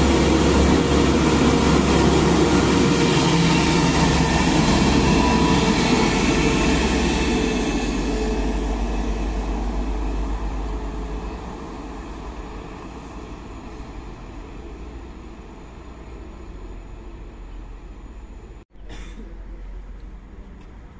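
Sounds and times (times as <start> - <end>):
train pulling away: 0.0 - 18.6.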